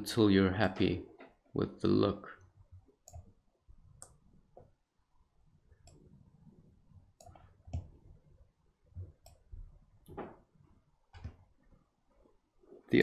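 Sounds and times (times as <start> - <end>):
computer mouse clicking: 3.0 - 3.3, 4.0 - 4.2, 5.8 - 6.1, 7.2 - 8.0, 9.2 - 9.5.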